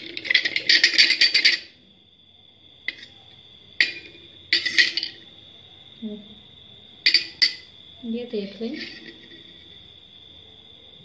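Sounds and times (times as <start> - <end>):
spoon grinding on steel saucer: 3.8 - 5.2
spoon clinking on saucer: 7.1 - 7.7.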